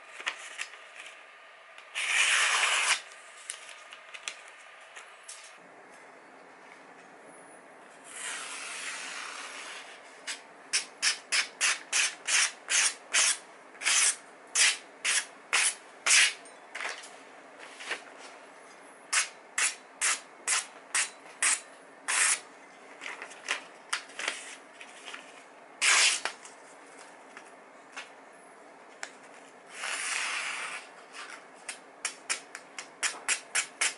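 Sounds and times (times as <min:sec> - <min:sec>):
cleaver slicing paper: 0:01.9 - 0:03.6.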